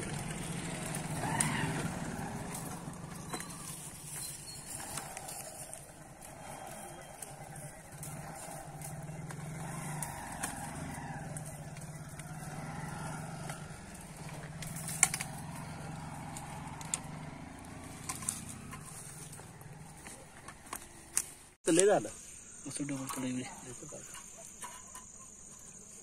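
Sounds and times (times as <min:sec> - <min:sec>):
vehicle engine running: 0:00.0 - 0:21.6.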